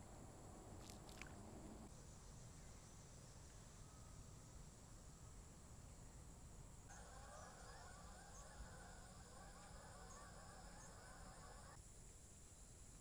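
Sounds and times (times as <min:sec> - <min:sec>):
low background noise: 0:00.0 - 0:13.0
flock of birds calling: 0:06.9 - 0:11.8.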